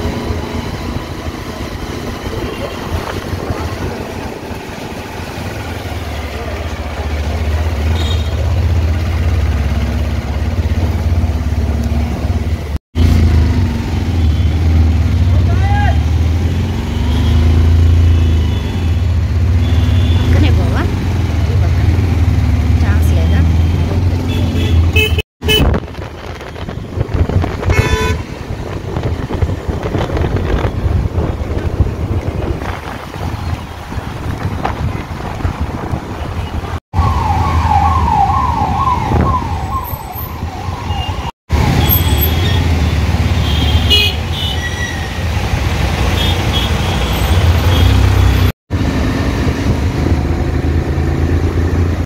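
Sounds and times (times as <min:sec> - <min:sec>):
motorcycle engine humming: 0:00.0 - 0:52.0
road and wind noise: 0:00.0 - 0:52.0
wind buffeting microphone: 0:00.8 - 0:04.5, 0:25.4 - 0:41.1
vehicle horns honking: 0:07.9 - 0:08.5, 0:19.6 - 0:20.6, 0:23.3 - 0:25.8, 0:27.7 - 0:28.4, 0:40.9 - 0:45.2, 0:46.0 - 0:48.5.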